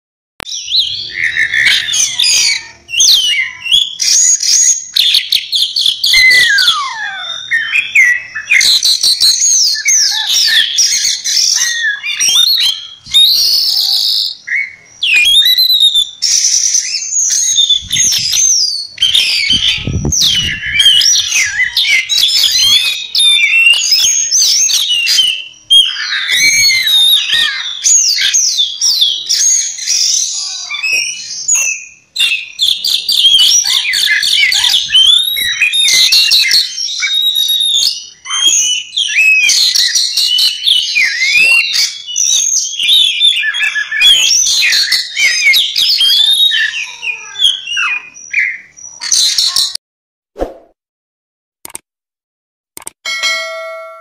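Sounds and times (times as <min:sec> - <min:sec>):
songbird singing trills and whistles: 0:00.4 - 0:49.8.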